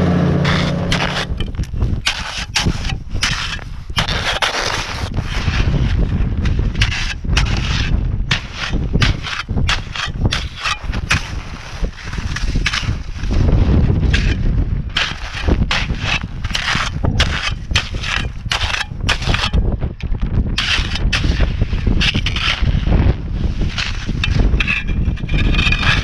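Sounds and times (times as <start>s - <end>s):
shovel crunching hard snow: 0.0s - 19.7s, 20.6s - 26.0s
wind rumble on microphone: 0.0s - 26.0s.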